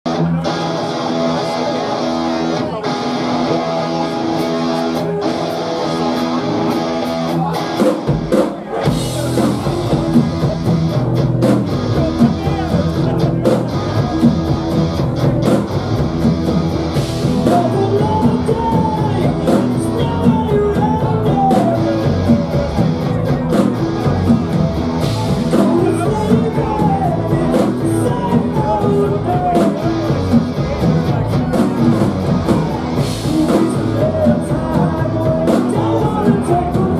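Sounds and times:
bass guitar: 0.0s - 36.9s
drum kit: 0.1s - 36.9s
electric guitar: 0.1s - 36.9s
person singing: 17.1s - 36.9s.

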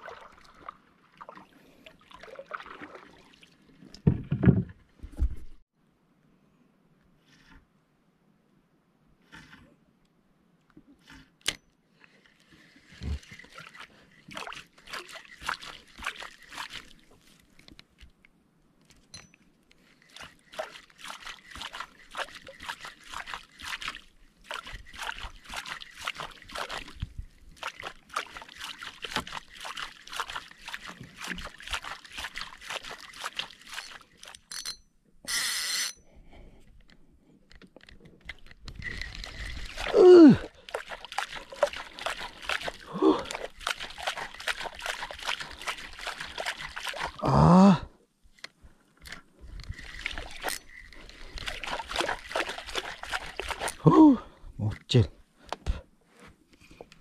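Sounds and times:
water splashing: 0.0s - 4.1s, 12.1s - 17.6s, 19.8s - 34.5s, 38.8s - 47.7s, 49.7s - 54.3s.

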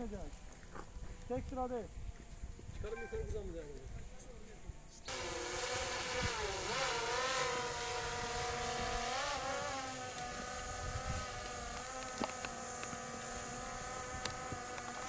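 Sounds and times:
small motor buzzing hum: 4.6s - 15.0s.

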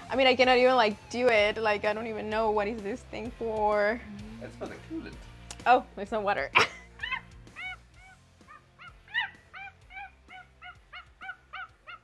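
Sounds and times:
ape hooting calls: 7.0s - 12.0s.

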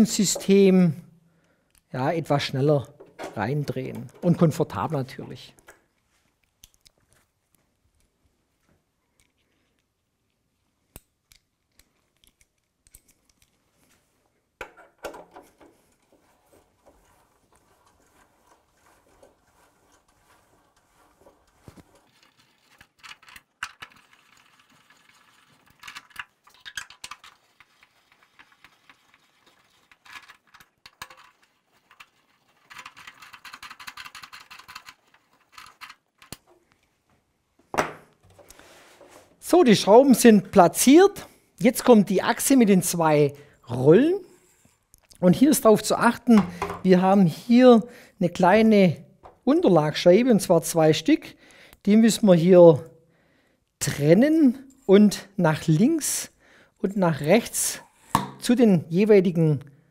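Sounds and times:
knocks and clatter of parts: 3.0s - 5.8s, 14.6s - 36.7s, 46.4s - 46.9s.

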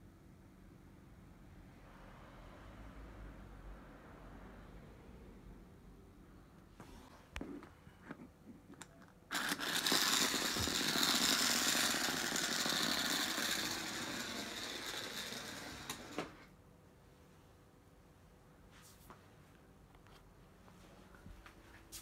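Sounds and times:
toy motor whirring: 9.3s - 16.4s.

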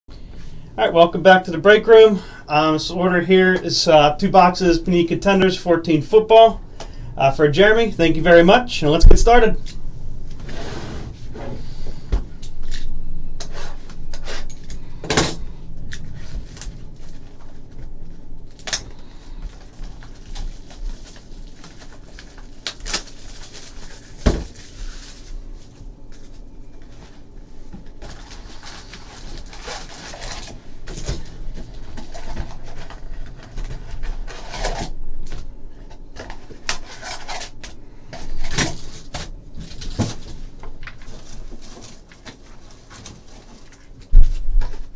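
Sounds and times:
cardboard and foil packs rustling: 15.8s - 44.9s.

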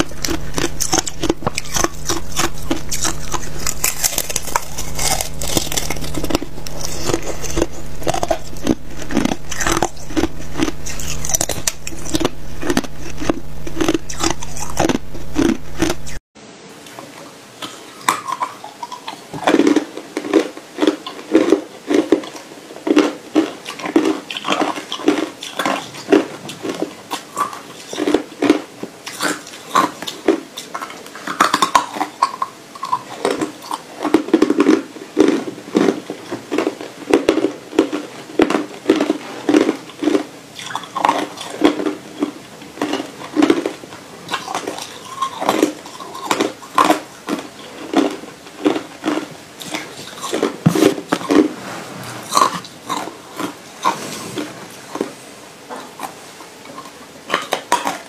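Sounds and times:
ice crunched between teeth: 0.0s - 16.2s, 33.2s - 51.5s.

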